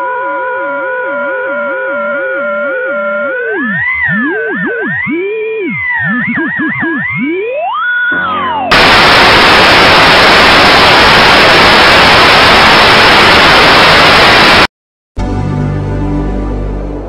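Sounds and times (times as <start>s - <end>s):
electronic tone gliding downward: 0.0s - 14.6s
tv static hiss: 8.6s - 14.7s.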